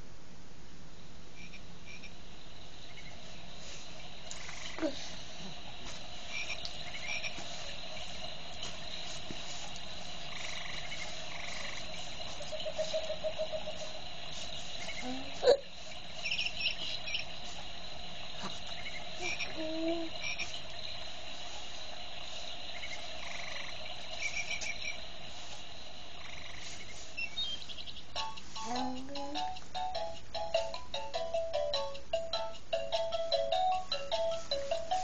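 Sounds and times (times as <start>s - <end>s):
frog croaks: 1.4s - 2.2s, 2.8s - 3.3s, 4.2s - 8.5s, 9.8s - 25.2s, 25.9s - 27.4s
frog and cricket calls: 1.4s - 30.9s.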